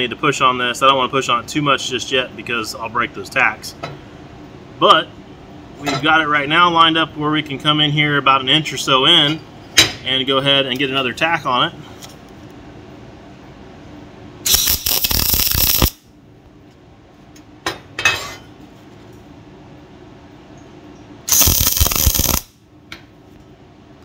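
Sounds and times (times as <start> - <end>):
welding arc bursts: 14.4 - 16.0, 21.3 - 22.6.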